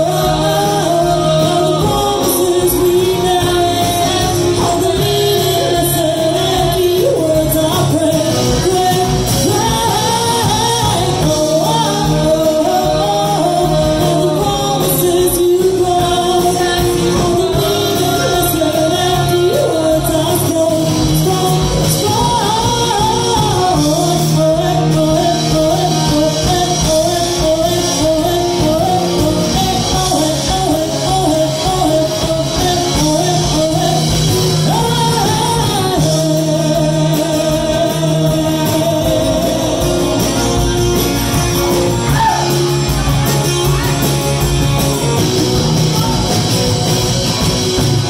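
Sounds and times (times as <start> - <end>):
women singing: 0.0 - 40.9
drums: 0.0 - 48.0
electric guitar: 0.0 - 48.0.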